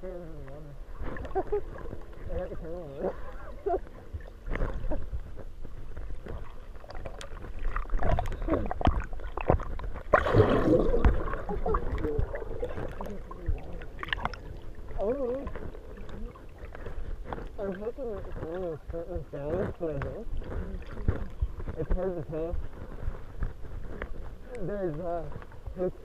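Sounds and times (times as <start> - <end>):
water swirling underwater: 0.0 - 26.0
rush of bubbles: 6.3 - 18.4.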